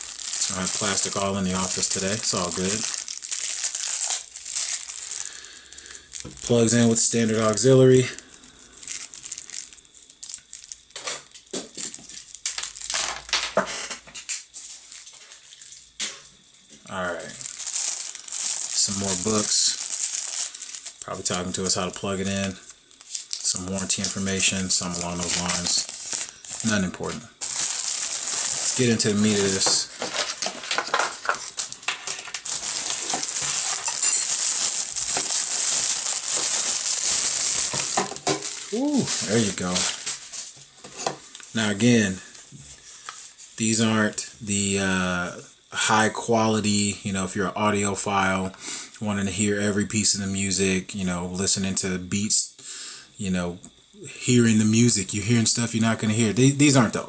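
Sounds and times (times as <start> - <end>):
plastic packaging crinkling: 0.0 - 13.5, 14.3 - 15.8, 16.9 - 43.6.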